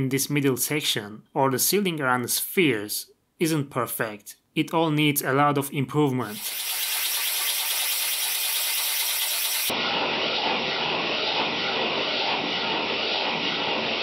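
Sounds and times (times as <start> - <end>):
propeller whirring: 6.3 - 14.0.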